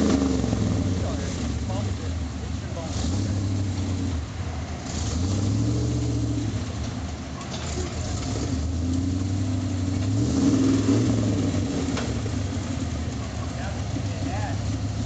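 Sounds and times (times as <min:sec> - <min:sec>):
pickup truck engine revving: 0:00.0 - 0:15.0.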